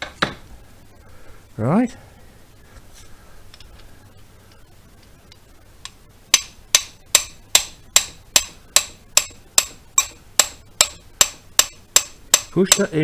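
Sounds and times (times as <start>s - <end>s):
hammer tapping metal: 6.3s - 13.0s.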